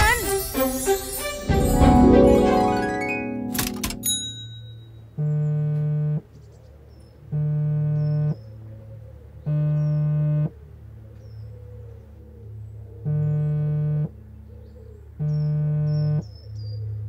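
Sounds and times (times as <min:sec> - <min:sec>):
phone vibrating on wooden table: 0:05.2 - 0:06.2, 0:13.1 - 0:14.1.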